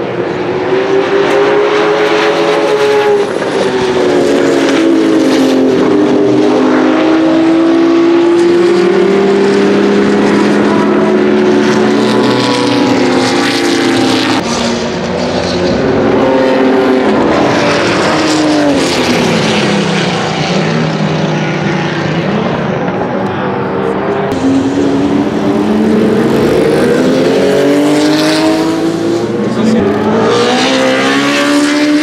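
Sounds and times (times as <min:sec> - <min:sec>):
race car engines at speed: 0:00.0 - 0:32.0.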